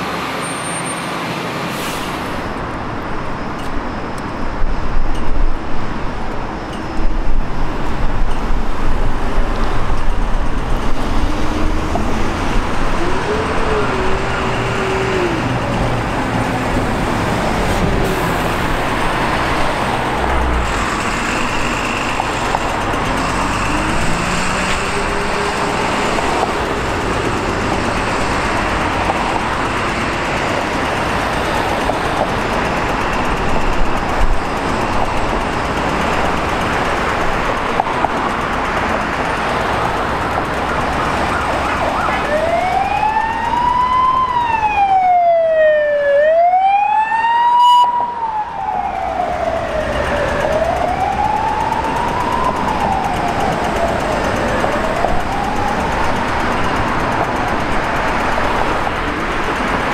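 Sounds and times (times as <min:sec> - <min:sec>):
road traffic: 0:00.0 - 0:59.9
siren wailing: 0:11.0 - 0:20.6, 0:21.5 - 0:29.7, 0:40.3 - 0:58.9.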